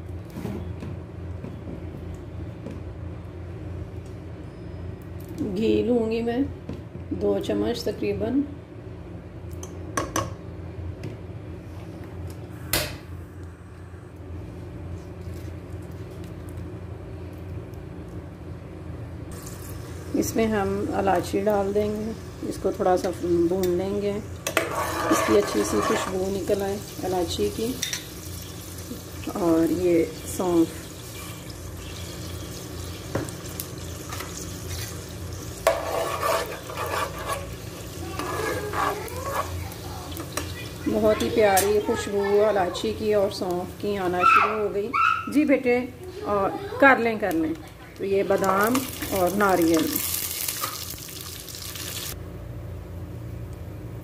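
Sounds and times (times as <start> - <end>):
steady low hum: 0.0 - 49.6
faint sizzle: 19.2 - 52.2
metal spoon scraping pan: 24.5 - 26.3, 35.6 - 37.6, 38.2 - 39.6.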